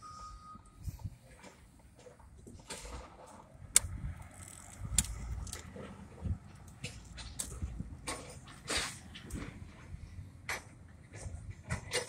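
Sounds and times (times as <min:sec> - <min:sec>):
reversing alarm beep: 0:00.0 - 0:00.9
knocks and clanks: 0:05.6 - 0:12.0.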